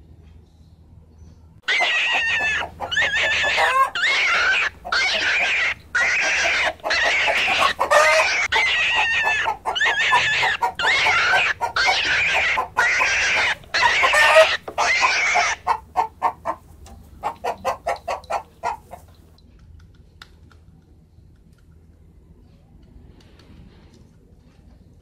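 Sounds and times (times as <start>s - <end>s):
chicken clucking: 1.6s - 19.4s.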